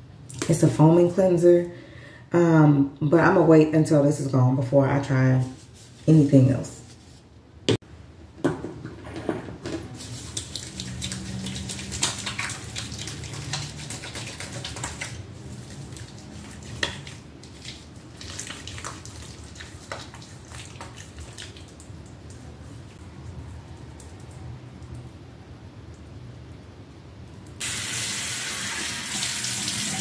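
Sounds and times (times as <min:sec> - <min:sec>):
wet rubbing of hands: 0:05.4 - 0:06.1, 0:09.9 - 0:22.9
splashing: 0:10.0 - 0:22.5
water running from tap: 0:10.1 - 0:15.2, 0:27.6 - 0:30.0.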